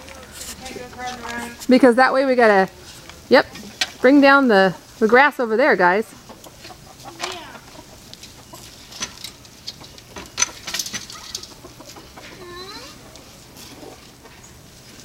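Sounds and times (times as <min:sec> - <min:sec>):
chickens clucking: 0:02.6 - 0:15.0
chicken drawn-out call: 0:09.8 - 0:14.7.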